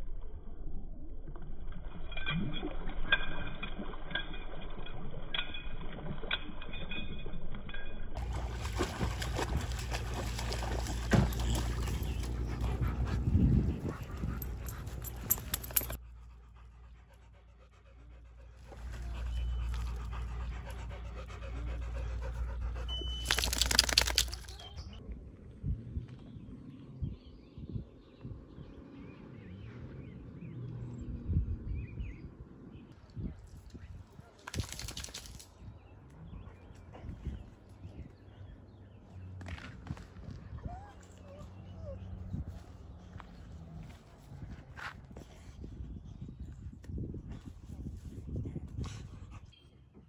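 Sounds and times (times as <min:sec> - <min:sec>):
water splashing: 0:08.2 - 0:12.4
dogs panting: 0:08.2 - 0:24.7.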